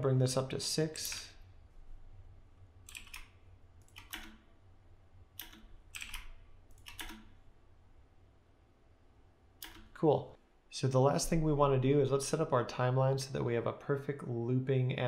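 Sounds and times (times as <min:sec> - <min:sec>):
low steady hum: 0:00.0 - 0:15.0
computer keyboard keys clicking: 0:02.9 - 0:04.4, 0:05.4 - 0:07.3, 0:09.6 - 0:09.9.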